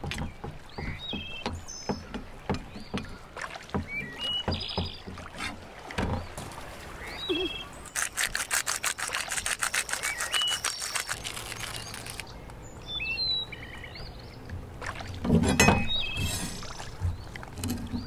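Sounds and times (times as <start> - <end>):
handling rustle: 7.9 - 12.6
pepper grinder crunching clicks: 8.0 - 12.2.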